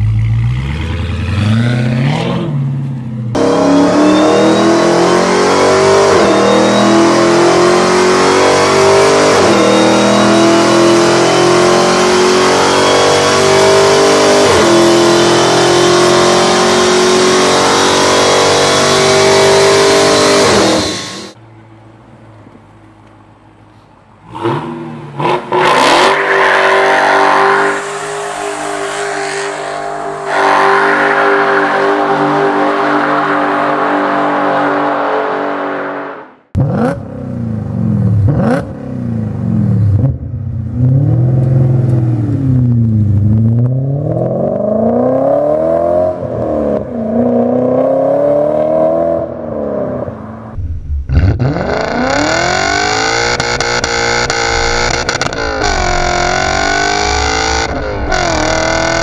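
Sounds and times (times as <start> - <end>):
car engine revving up and down: 0.0 - 21.4, 24.2 - 59.0
car engine at high revs: 3.3 - 21.4, 24.2 - 59.0
tyres screeching in burnout: 25.9 - 34.8.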